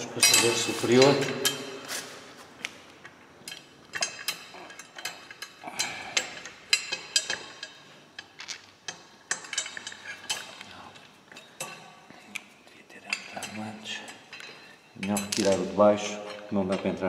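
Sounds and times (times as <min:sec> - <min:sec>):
small metal parts clinking: 0:03.4 - 0:11.9, 0:14.3 - 0:15.7.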